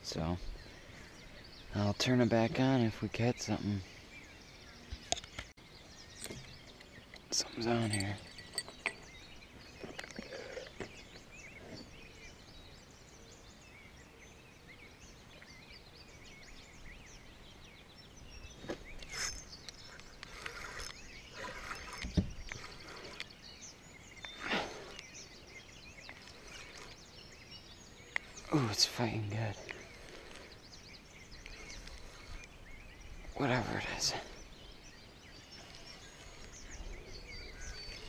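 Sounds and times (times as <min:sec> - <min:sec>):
small bird chirps: 0:00.0 - 0:38.0
microphone handling knocks and rustles: 0:22.0 - 0:22.5.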